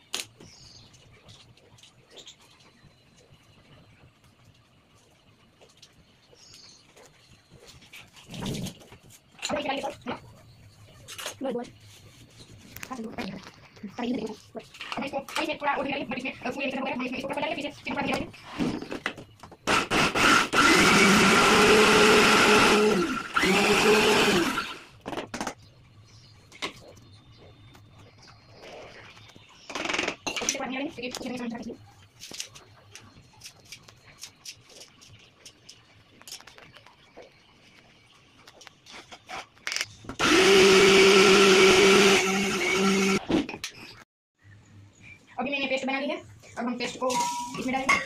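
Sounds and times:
mixer grinder running: 0:19.7 - 0:24.9, 0:40.2 - 0:43.2.

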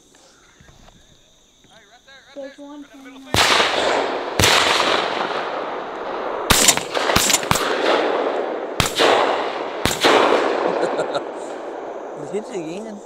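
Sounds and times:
shotgun shots with echo: 0:03.3 - 0:12.1.

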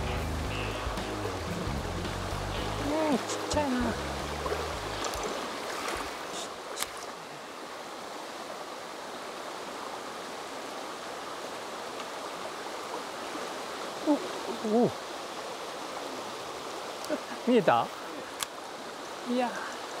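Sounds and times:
stream flowing over pebbles: 0:00.0 - 0:20.0
light clicks: 0:06.8 - 0:07.1, 0:18.3 - 0:18.6.

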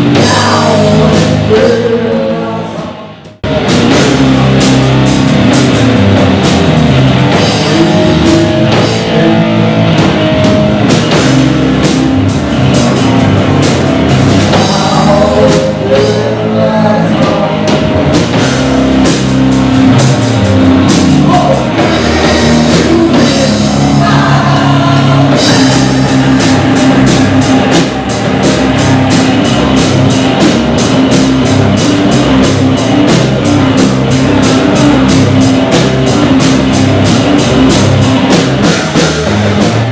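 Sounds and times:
person singing: 0:00.0 - 0:03.2, 0:07.4 - 0:09.7, 0:14.5 - 0:18.2, 0:21.2 - 0:30.1
rock band playing: 0:00.0 - 0:39.9.

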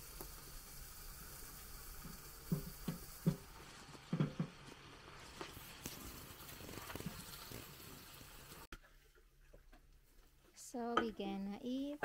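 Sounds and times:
food sizzling on griddle: 0:00.0 - 0:08.7.

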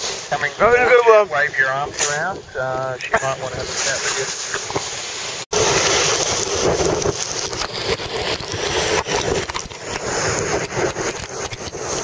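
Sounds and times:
sea rushing: 0:00.0 - 0:12.0
wind buffeting microphone: 0:05.5 - 0:12.0.

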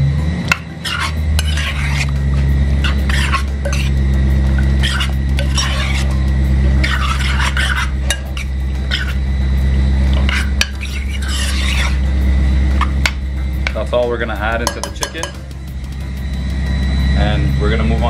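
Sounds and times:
steady low hum: 0:00.0 - 0:18.0
metal spoon stirring chicken in bowl: 0:00.8 - 0:02.2, 0:02.8 - 0:04.0, 0:04.6 - 0:09.2, 0:10.1 - 0:12.0, 0:14.6 - 0:15.5.

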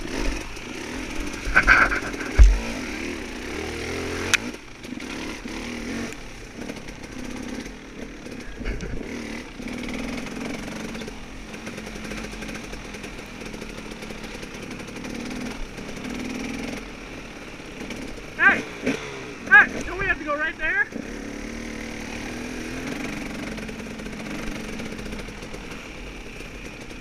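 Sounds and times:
dirt bike engine revving: 0:00.0 - 0:27.0
sharp knock: 0:01.6 - 0:02.7.

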